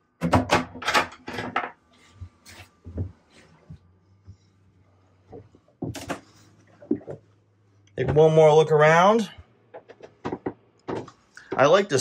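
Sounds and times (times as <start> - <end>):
cabinet doors shutting and latching: 0.2 - 1.8, 5.8 - 6.3.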